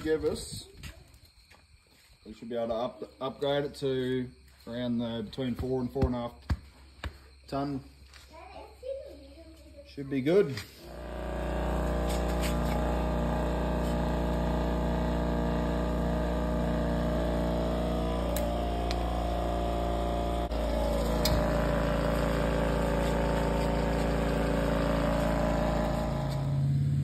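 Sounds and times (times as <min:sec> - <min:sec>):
air compressor motor hum: 0:10.7 - 0:27.0.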